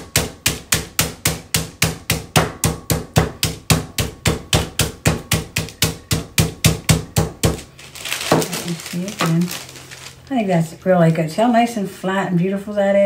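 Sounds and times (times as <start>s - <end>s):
meat mallet pounding chicken: 0.0s - 8.5s.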